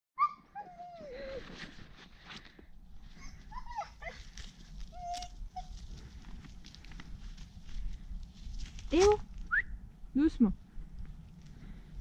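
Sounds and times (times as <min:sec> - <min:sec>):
dog whining: 0:00.2 - 0:01.5, 0:03.2 - 0:04.3, 0:04.9 - 0:05.8.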